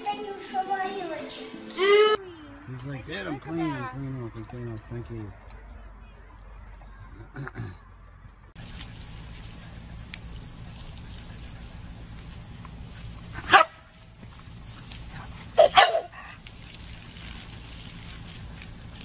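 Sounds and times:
dog barking: 13.4 - 13.9, 15.5 - 16.4.

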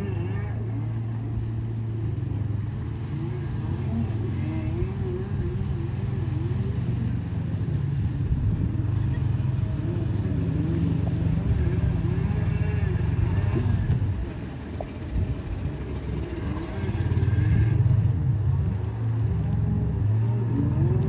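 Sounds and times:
jet ski engines running: 0.0 - 21.0.

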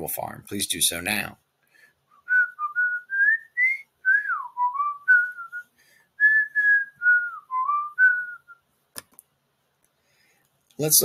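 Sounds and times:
breaths: 1.6 - 2.1, 5.6 - 6.2, 9.9 - 10.6
person whistling a tune: 2.1 - 8.6.

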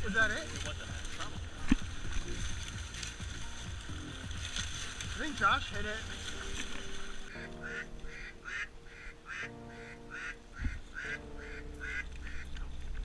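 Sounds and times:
background music: 0.0 - 13.0
rapid duck quacks: 7.3 - 12.4.

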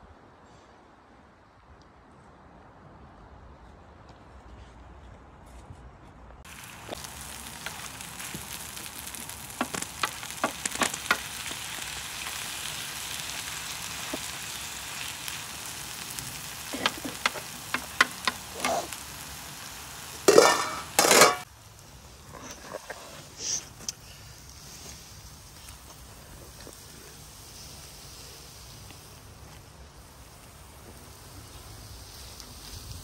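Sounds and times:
vegetables sizzling in a frying pan: 6.5 - 22.2, 23.4 - 33.0.

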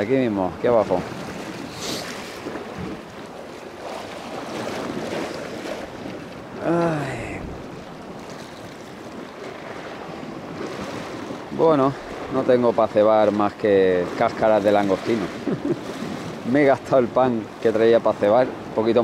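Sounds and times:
wind on microphone: 0.0 - 12.5
waves washing against rocks: 0.0 - 19.0.

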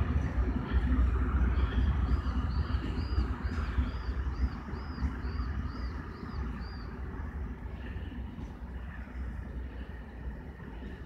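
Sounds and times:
diesel locomotive engine rumbling: 0.0 - 11.0
bird chirping: 1.4 - 7.0.

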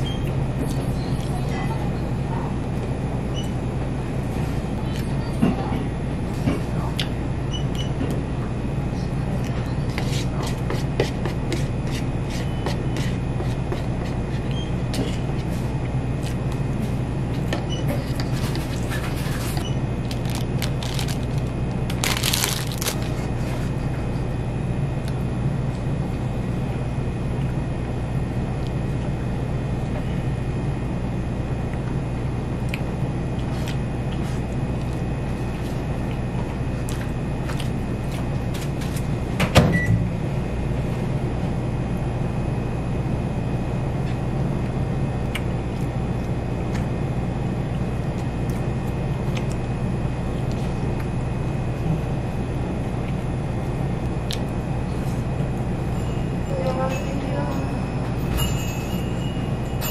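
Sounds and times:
low background hum: 0.0 - 59.9
plastic wrapper tearing: 20.0 - 23.3
wrapper crinkling and clicks: 20.0 - 23.3.

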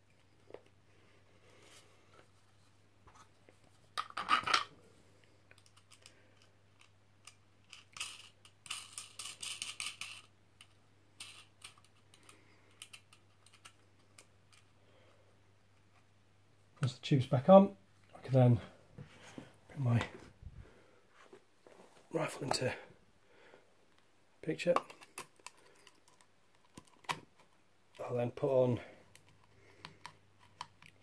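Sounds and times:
hands handling plastic parts: 2.1 - 4.8, 5.4 - 14.8, 24.0 - 31.0.

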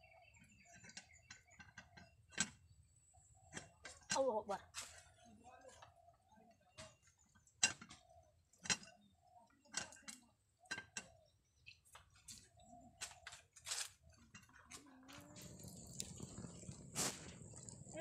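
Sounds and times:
wood fire popping and cracking: 15.2 - 18.0.

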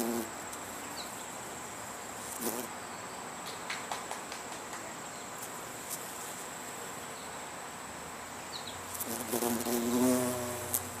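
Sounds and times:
bumblebee buzzing: 0.0 - 0.3, 2.3 - 2.7, 8.9 - 11.0
faint steady hiss: 0.0 - 11.0.

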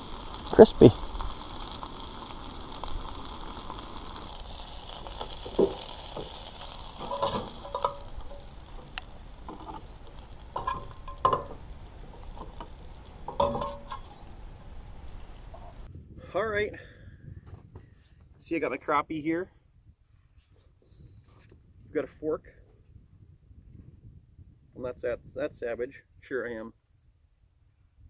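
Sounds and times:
fish sizzling in a pan: 0.0 - 15.9.

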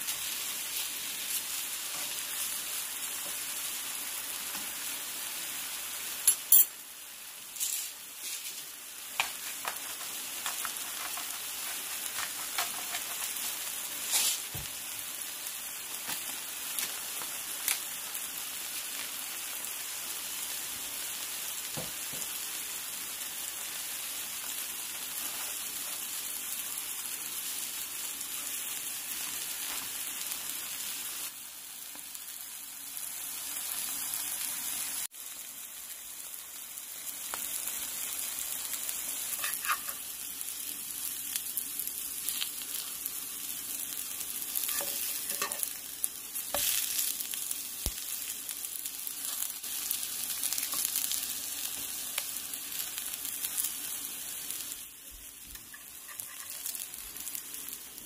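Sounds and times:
mushroom slices sizzling in pan: 0.0 - 58.0
metal fork scraping pan: 39.3 - 40.0, 44.6 - 45.7, 55.6 - 56.7.

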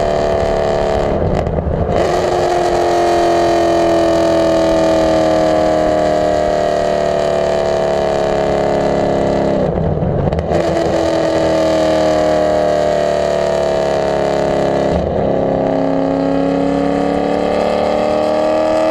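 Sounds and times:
car exhaust at high revs: 0.0 - 18.9.

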